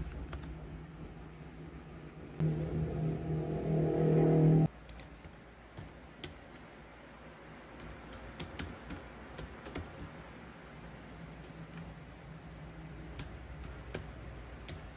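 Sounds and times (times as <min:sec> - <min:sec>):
steady low hum: 0:00.0 - 0:08.4
typing on computer keyboard: 0:07.8 - 0:10.2.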